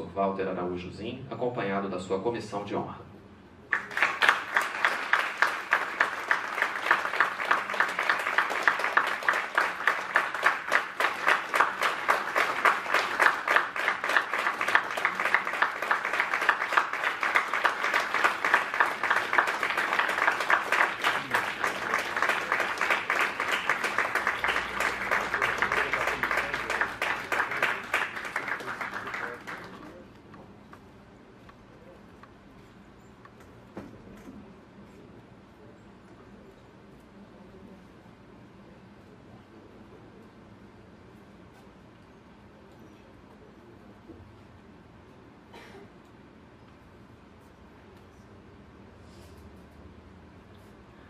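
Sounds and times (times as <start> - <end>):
audience applauding: 3.7 - 30.0.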